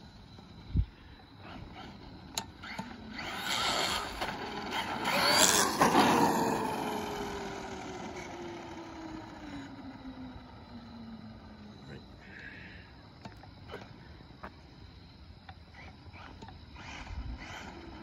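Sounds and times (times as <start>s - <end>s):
rc truck motor whine: 0.0s - 13.6s, 15.0s - 18.0s.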